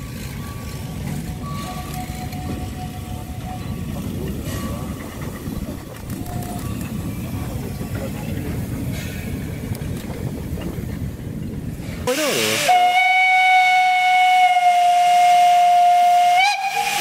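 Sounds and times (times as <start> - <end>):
train rolling past: 0.0 - 17.0
steam locomotive whistle: 12.1 - 17.0.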